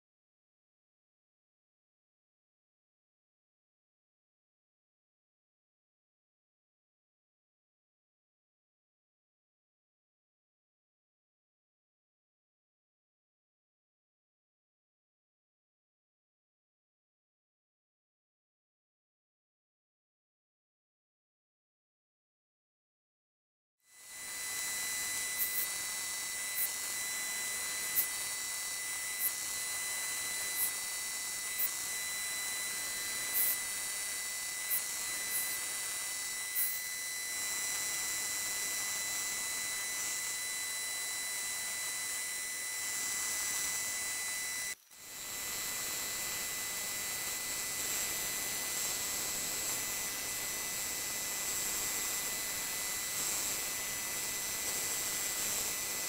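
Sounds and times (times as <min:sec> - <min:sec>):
milling machine whine and hiss: 0:24.0 - 0:56.0.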